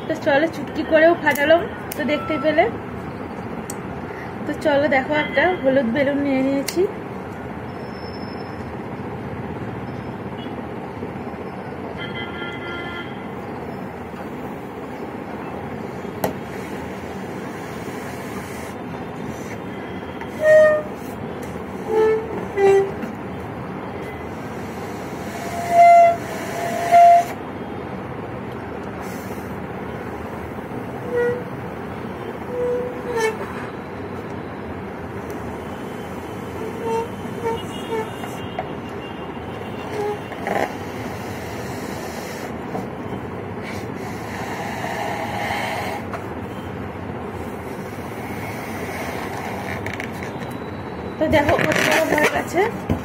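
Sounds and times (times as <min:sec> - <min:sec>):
balloon squeaky honks: 0:31.0 - 0:31.5, 0:36.5 - 0:38.6.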